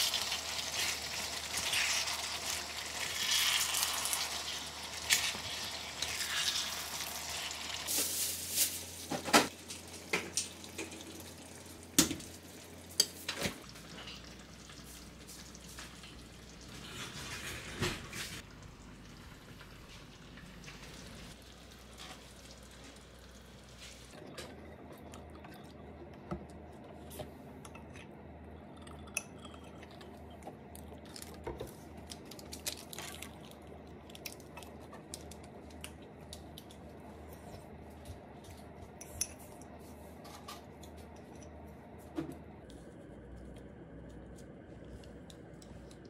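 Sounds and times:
utensils clinking on dishes: 28.8s - 30.1s.

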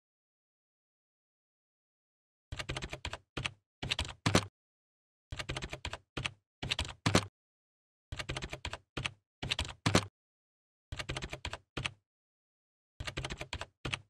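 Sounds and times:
keyboard key clicks: 2.6s - 4.5s, 5.4s - 7.3s, 8.2s - 10.1s.

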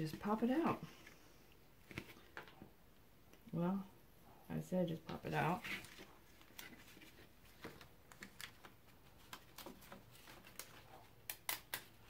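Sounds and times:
tool prying card clicks: 11.2s - 12.0s.

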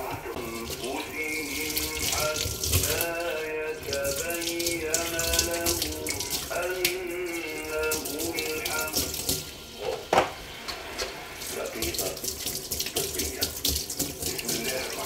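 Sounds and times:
hands rinsing under water: 0.0s - 9.6s, 11.1s - 15.0s
tap running into a sink: 7.7s - 11.1s, 11.8s - 15.0s.

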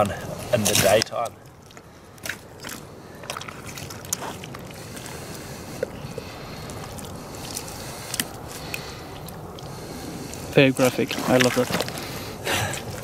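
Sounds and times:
wet carcass gutting by hand: 0.0s - 13.0s
steady background hiss: 4.2s - 13.0s.

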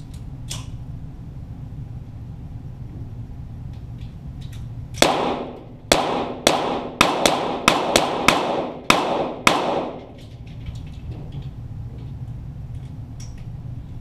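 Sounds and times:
pistol shots echoing: 5.0s - 10.2s.

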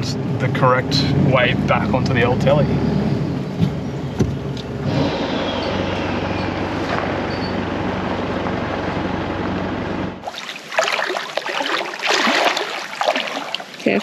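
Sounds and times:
diesel engine running: 0.0s - 10.2s.

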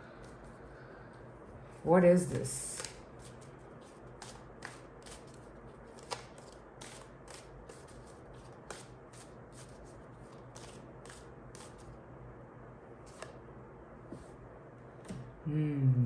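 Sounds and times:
cards being shuffled: 2.7s - 11.9s, 13.0s - 13.4s.

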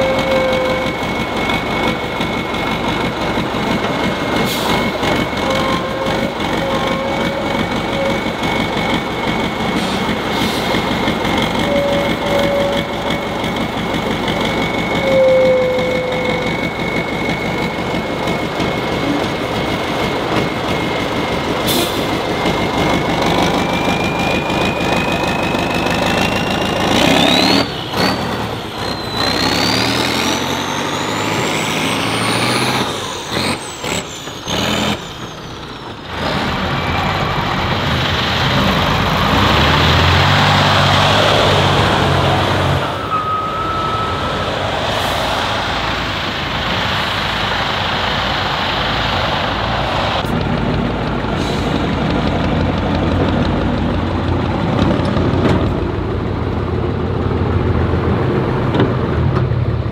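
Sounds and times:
high whistle: 0.0s - 3.6s, 4.3s - 19.6s, 20.3s - 35.8s, 42.8s - 47.0s
truck engine running hard: 0.0s - 59.9s.

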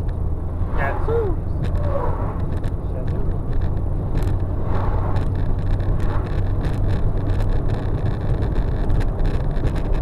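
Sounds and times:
road rumble inside car: 0.0s - 10.0s
passing truck whoosh: 0.3s - 2.8s, 3.8s - 7.0s.

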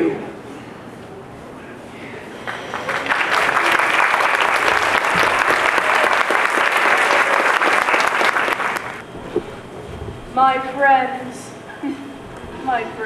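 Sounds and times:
audience applauding: 2.4s - 9.0s.

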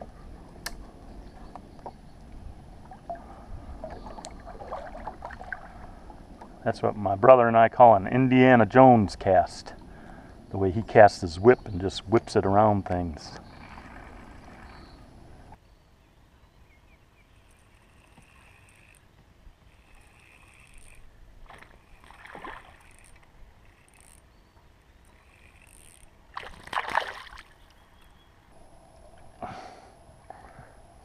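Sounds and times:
faint water sounds: 0.0s - 31.0s
splashes or knocks: 26.3s - 27.6s.

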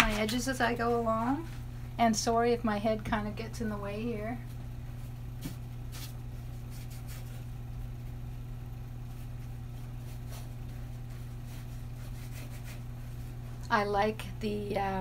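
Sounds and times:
steady low hum: 0.0s - 15.0s
paintbrush brushing on canvas: 5.5s - 7.5s, 9.1s - 13.6s.

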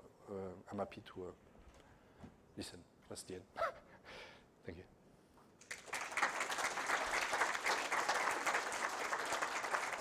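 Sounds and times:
audience applauding: 5.6s - 10.0s.

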